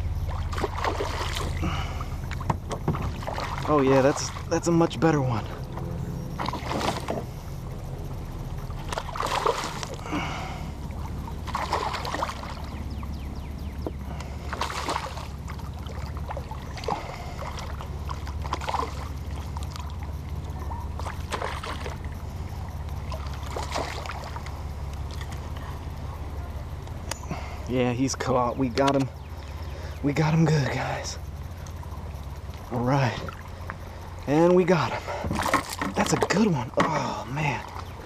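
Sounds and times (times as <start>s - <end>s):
steady low rumble: 0.0s - 38.0s
fish splashing at the surface: 0.3s - 2.4s, 3.0s - 4.5s, 8.8s - 10.7s, 11.4s - 12.7s, 14.2s - 19.9s, 21.0s - 22.0s, 23.1s - 24.4s.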